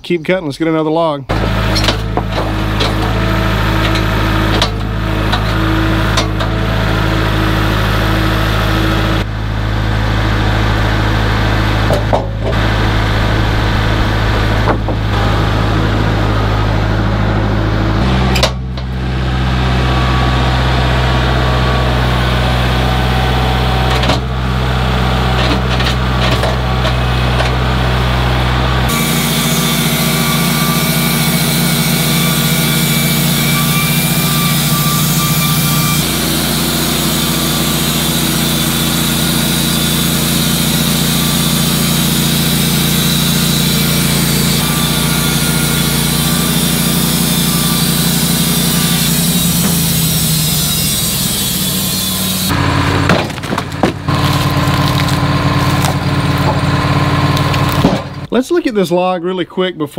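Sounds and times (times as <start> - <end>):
sawmill engine running: 0.6 - 58.8
band saw blade hiss and whine: 28.9 - 52.5.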